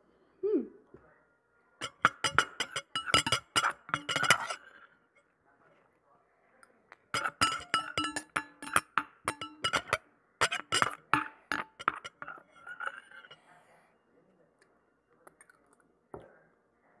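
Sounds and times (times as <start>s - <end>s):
spoon clinking on metal bowl: 1.8s - 4.8s, 7.1s - 13.4s.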